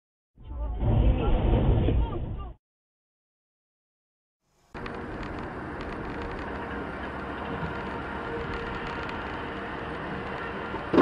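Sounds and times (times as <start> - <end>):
car road and engine noise: 4.5 - 11.0.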